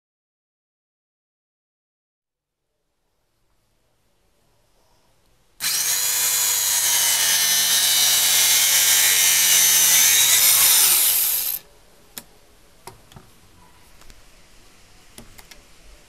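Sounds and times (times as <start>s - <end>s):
circular saw cutting wood: 5.6s - 11.6s.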